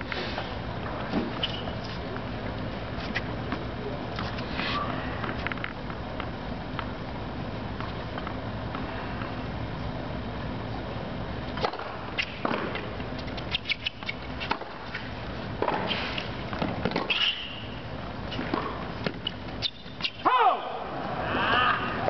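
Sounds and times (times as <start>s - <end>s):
shoe squeal: 1.4s - 2.0s, 13.4s - 14.4s, 17.1s - 18.5s, 19.2s - 20.3s
ball bouncing on court: 18.4s - 19.3s.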